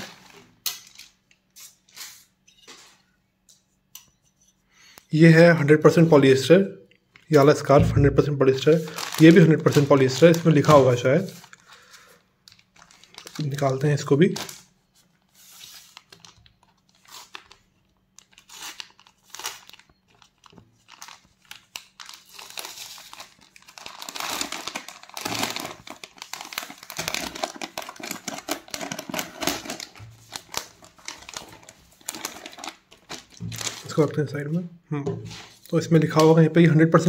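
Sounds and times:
plastic packet crinkling: 0:08.4 - 0:14.8, 0:15.8 - 0:34.2.

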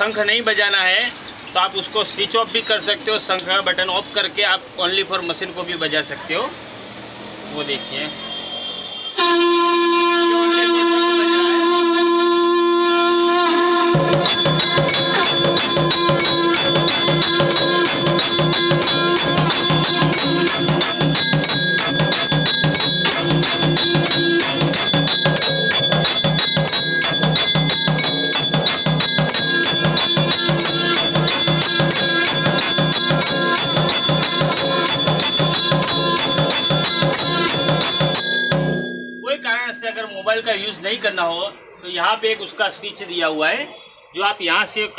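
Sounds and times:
cymbals clashing: 0:13.6 - 0:41.8
drum beating: 0:13.7 - 0:39.2
mechanical bell ringing: 0:13.9 - 0:41.8.

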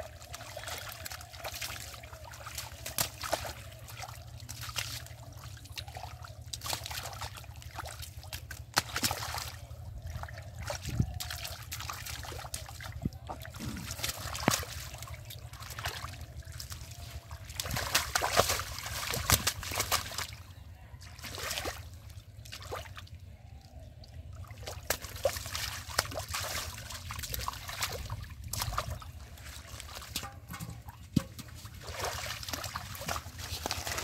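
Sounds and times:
hands splashing in muddy water: 0:00.0 - 0:23.2, 0:24.2 - 0:34.0
water dripping: 0:24.6 - 0:34.0.

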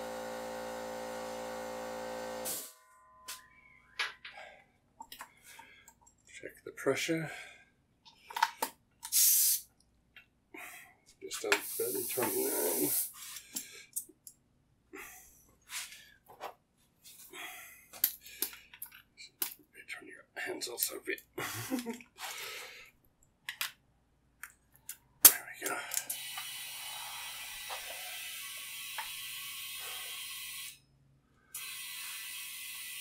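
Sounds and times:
air hissing from hose chuck: 0:09.1 - 0:09.6, 0:11.6 - 0:13.4.

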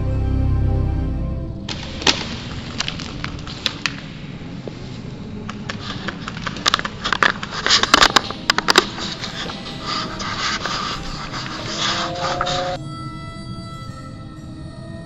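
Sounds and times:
footsteps through dry undergrowth: 0:01.7 - 0:12.8.

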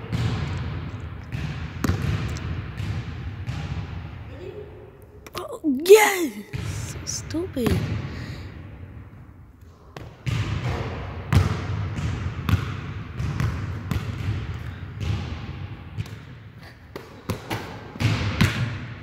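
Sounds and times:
basketball bouncing on court: 0:00.0 - 0:04.1, 0:10.0 - 0:18.9.

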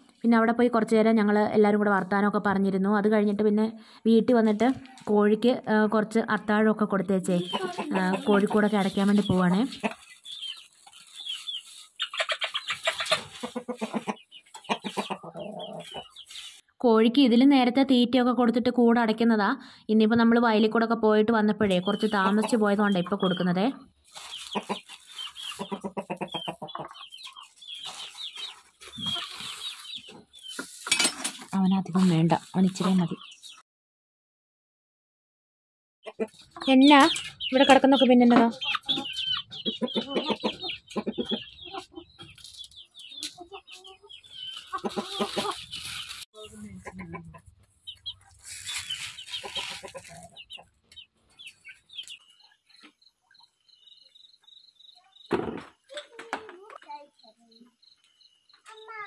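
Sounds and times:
chickens clucking: 0:06.6 - 0:16.6, 0:21.5 - 0:33.6, 0:36.0 - 0:59.0
chicken high calls: 0:09.7 - 0:16.5, 0:24.1 - 0:30.6, 0:36.0 - 0:51.7.

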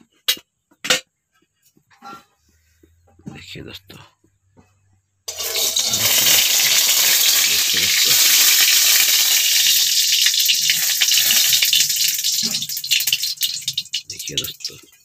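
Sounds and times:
metal spatula scraping pan: 0:05.3 - 0:07.6
food sizzling in hot oil: 0:05.3 - 0:15.0.

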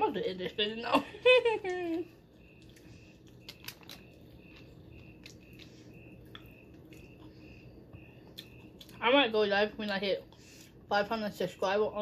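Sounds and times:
chewing: 0:02.3 - 0:09.0.

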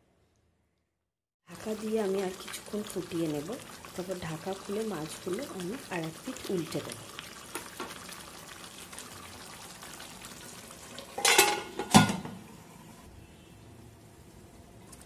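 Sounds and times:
curry bubbling at a simmer: 0:01.5 - 0:11.3.

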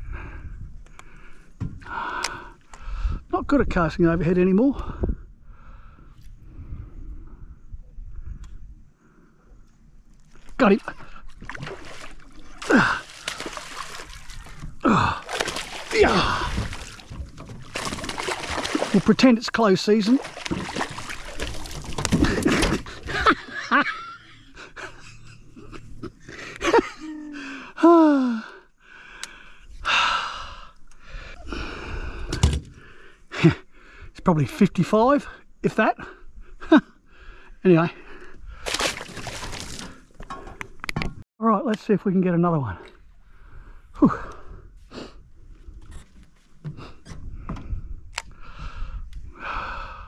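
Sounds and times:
person breathing hard: 0:00.0 - 0:03.3, 0:04.8 - 0:07.5, 0:14.8 - 0:17.0, 0:26.2 - 0:34.2, 0:46.7 - 0:50.0
person sighing: 0:12.6 - 0:13.4, 0:14.8 - 0:17.0, 0:26.9 - 0:28.6.

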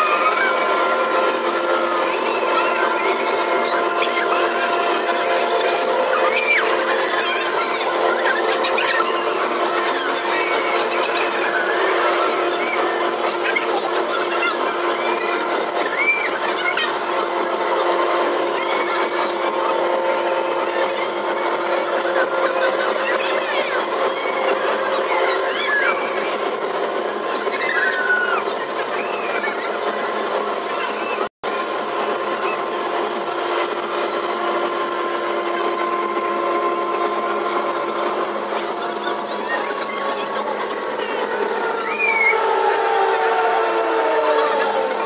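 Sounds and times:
ride mechanical hum and whine: 0:00.0 - 0:45.0
short high squeals: 0:38.8 - 0:44.8.

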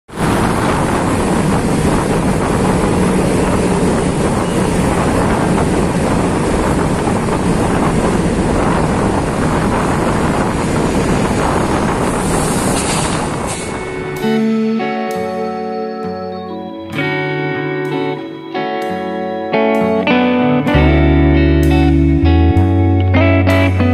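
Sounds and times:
scooter engine: 0:00.1 - 0:14.2
wind rush on microphone: 0:00.1 - 0:14.6
music: 0:13.8 - 0:23.9.

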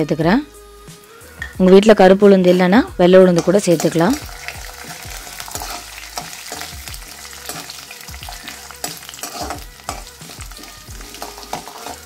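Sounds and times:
lentils sizzling in oil: 0:03.0 - 0:12.0
spatula scraping and tapping pan: 0:03.3 - 0:04.4, 0:05.2 - 0:12.0.

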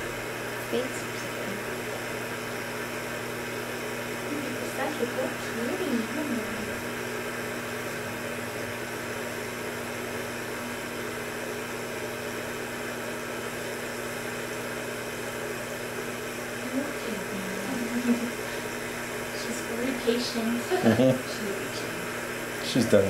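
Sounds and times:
fan-like hiss: 0:00.0 - 0:23.0
low electrical hum: 0:00.0 - 0:23.0.

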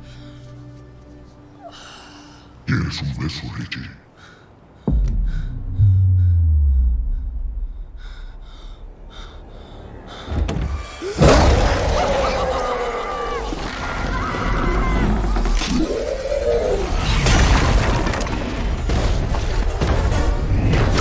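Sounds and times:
heavy thud: 0:04.9 - 0:08.5.

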